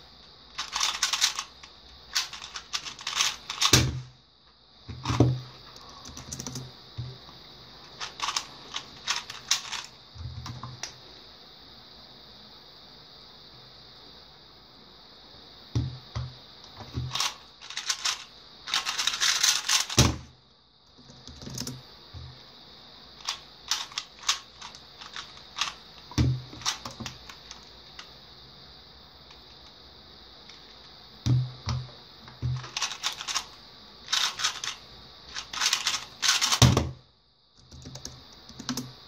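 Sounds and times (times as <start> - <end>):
speed cube plastic clicking: 0.6 - 3.9, 8.0 - 9.9, 17.1 - 20.1, 23.2 - 28.1, 32.6 - 36.8, 37.6 - 38.9.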